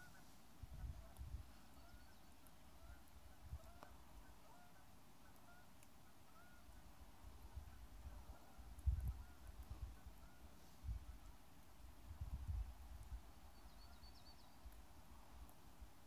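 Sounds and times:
geese honking: 0:00.0 - 0:00.3, 0:02.8 - 0:06.8.

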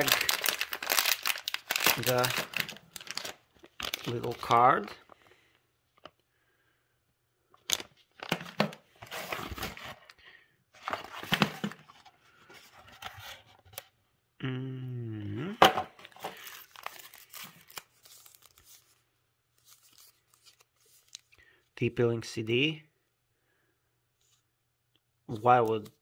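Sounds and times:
plastic bag crinkling: 0:00.0 - 0:05.0
paper rustling: 0:00.0 - 0:05.2, 0:07.7 - 0:10.0, 0:10.8 - 0:13.6
hum-like vocal sound: 0:14.4 - 0:15.6.

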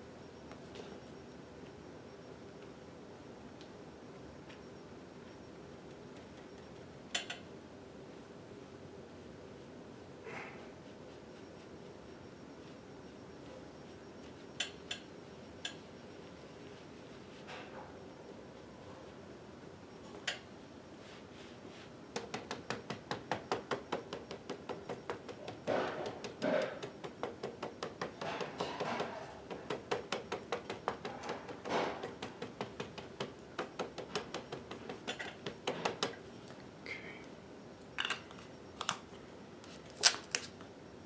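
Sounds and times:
ink pad tapping on rubber stamp: 0:22.1 - 0:36.2.

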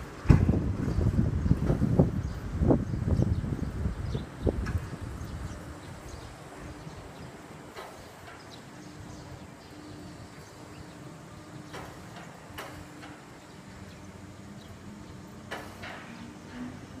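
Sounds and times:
train running hum: 0:00.0 - 0:17.0
train wheels clacking: 0:06.9 - 0:09.2, 0:11.6 - 0:13.9.

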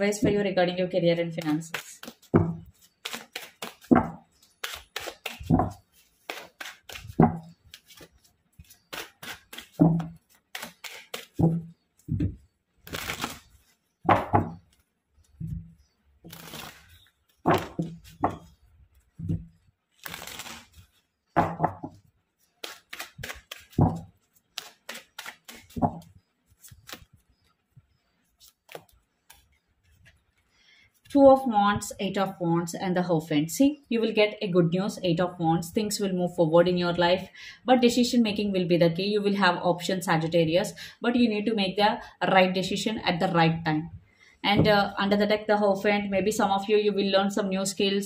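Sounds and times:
cards slapping and tapping: 0:01.4 - 0:13.4, 0:22.6 - 0:27.1, 0:28.4 - 0:30.2
cards riffling: 0:01.7 - 0:11.8, 0:12.8 - 0:13.8, 0:16.3 - 0:18.4, 0:19.9 - 0:21.0, 0:22.4 - 0:27.4.

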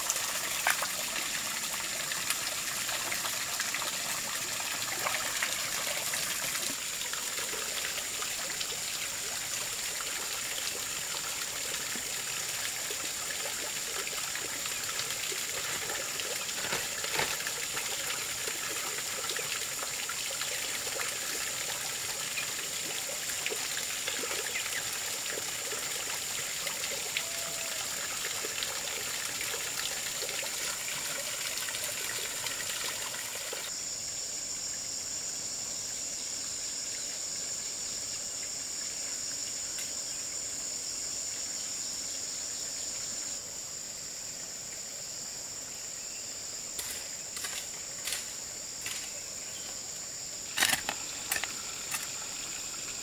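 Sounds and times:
water pouring from a hose: 0:00.0 - 0:33.7, 0:50.5 - 0:53.0.

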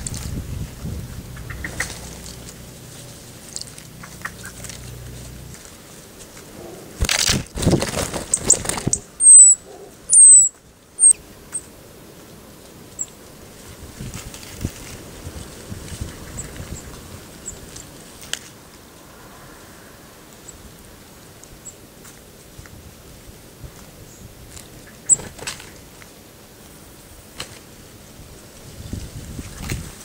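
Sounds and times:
small bird wings flapping: 0:00.0 - 0:09.2, 0:13.6 - 0:18.5, 0:24.5 - 0:26.1, 0:27.3 - 0:27.8, 0:28.8 - 0:30.0
high thin bird calls: 0:01.3 - 0:02.6, 0:03.8 - 0:05.0, 0:08.3 - 0:11.6
short high bird notes: 0:09.2 - 0:11.2.

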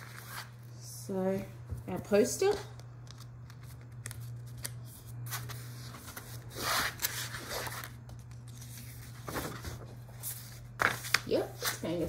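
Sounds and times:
steady low hum: 0:00.0 - 0:12.0
paper poster rustling: 0:03.1 - 0:12.0.

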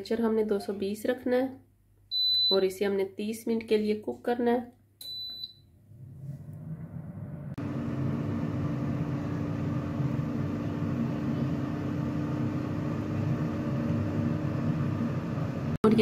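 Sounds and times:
air fryer fan whirring: 0:06.0 - 0:16.0.

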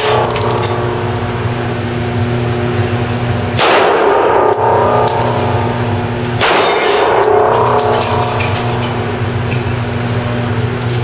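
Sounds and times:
steady low hum: 0:00.0 - 0:11.0
pistol shot: 0:03.6 - 0:04.1, 0:06.4 - 0:07.2
steel target clanging: 0:06.4 - 0:09.0.

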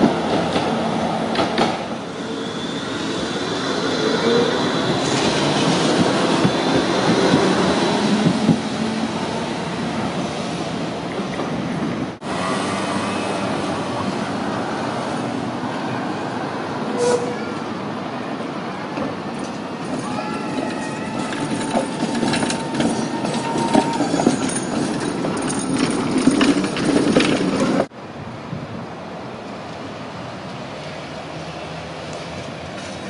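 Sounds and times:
tram wheels clicking over rails: 0:00.0 - 0:02.1, 0:02.9 - 0:13.8, 0:19.0 - 0:27.9
traffic noise: 0:00.0 - 0:33.0
steady squeal: 0:02.1 - 0:06.9, 0:19.9 - 0:27.7.

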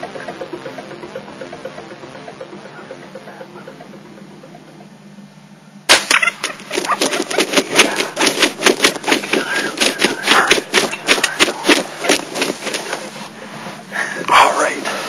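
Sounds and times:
turkeys flapping wings in dry grass: 0:05.9 - 0:13.6.

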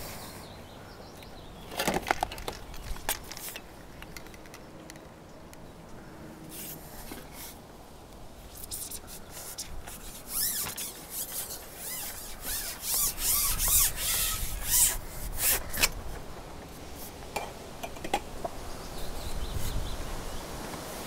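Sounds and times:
handling noise rubbing and scraping: 0:01.7 - 0:05.1, 0:06.5 - 0:07.6, 0:08.5 - 0:18.3
short squeaks: 0:08.6 - 0:15.9.

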